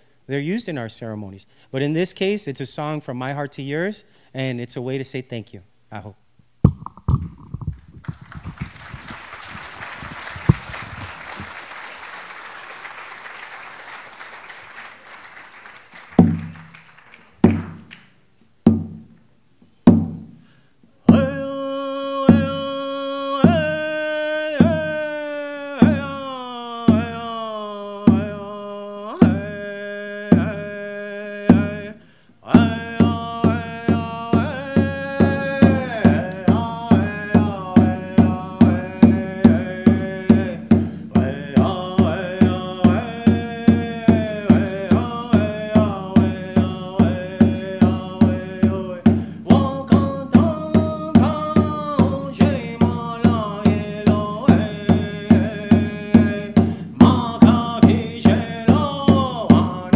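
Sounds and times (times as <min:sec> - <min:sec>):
hand drum beat: 0:06.7 - 0:11.7, 0:16.2 - 0:16.8, 0:17.4 - 0:18.0, 0:32.6 - 0:59.9
man singing: 0:21.0 - 0:59.9.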